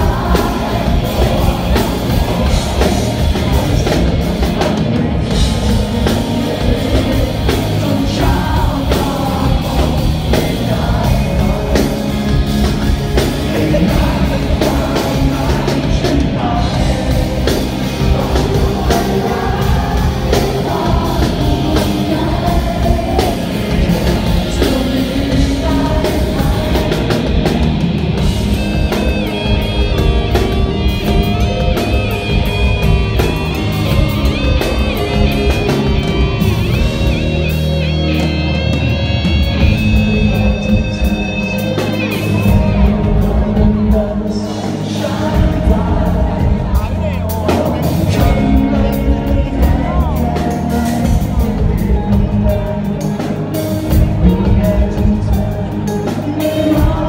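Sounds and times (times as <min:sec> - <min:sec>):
electric guitar lead line: 0:00.0 - 0:57.0
live rock band playing: 0:00.0 - 0:57.0
man singing: 0:00.0 - 0:57.0.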